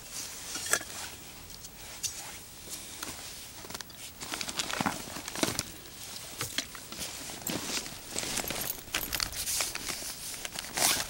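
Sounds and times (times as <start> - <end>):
backpack rustling: 4.1 - 11.0.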